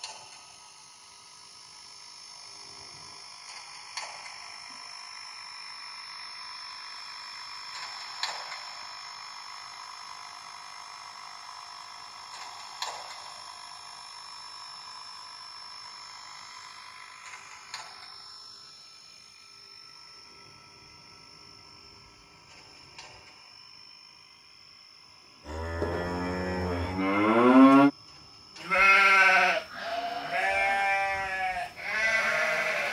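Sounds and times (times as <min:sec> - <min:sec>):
model train whine and hiss: 0:00.0 - 0:25.8.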